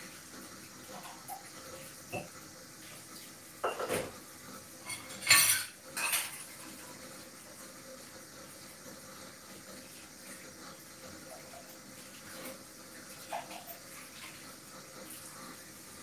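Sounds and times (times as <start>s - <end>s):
plates and cutlery clattering: 2.1s - 2.4s, 3.6s - 4.2s, 4.8s - 6.7s.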